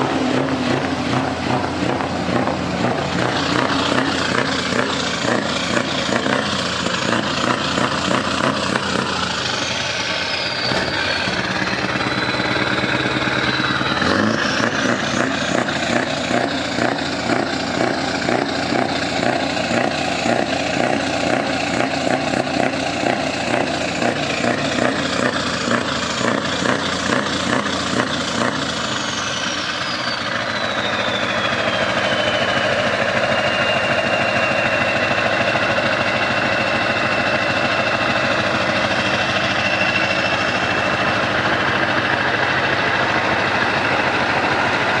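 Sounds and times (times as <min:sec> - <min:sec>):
diesel truck engine running: 0:00.0 - 0:45.0
high whistle: 0:09.5 - 0:11.4, 0:28.8 - 0:38.3.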